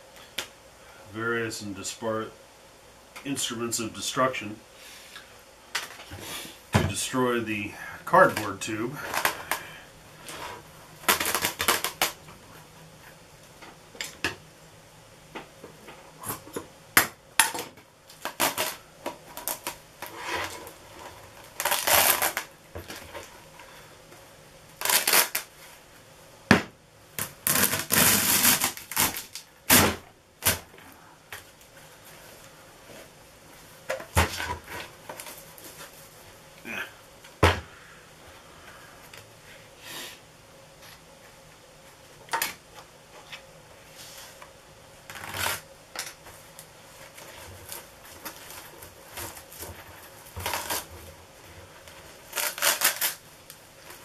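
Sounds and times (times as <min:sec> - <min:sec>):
plastic film rustling and crinkling: 0:10.2 - 0:12.2, 0:18.1 - 0:23.7, 0:24.8 - 0:25.8, 0:27.2 - 0:29.8, 0:34.3 - 0:36.3, 0:46.3 - 0:54.0.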